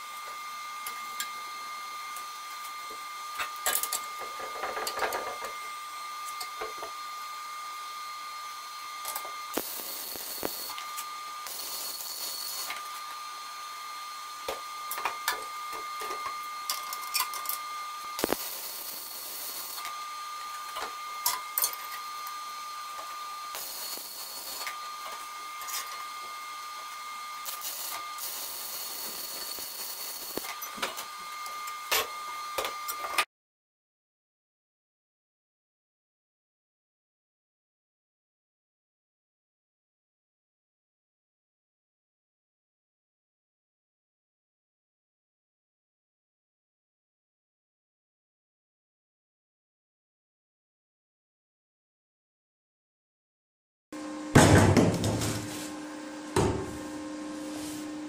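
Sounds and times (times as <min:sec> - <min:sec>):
arc welding crackling: 0:09.0 - 0:13.0, 0:16.6 - 0:22.1, 0:22.9 - 0:26.3, 0:27.4 - 0:31.6
steady high whine: 0:09.0 - 0:13.2, 0:16.0 - 0:30.6.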